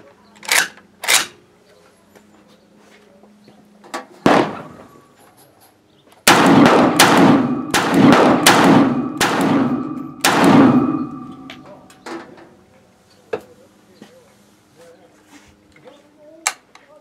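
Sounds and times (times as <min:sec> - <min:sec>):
pistol shots ringing out: 0:04.3 - 0:05.1, 0:06.2 - 0:11.9.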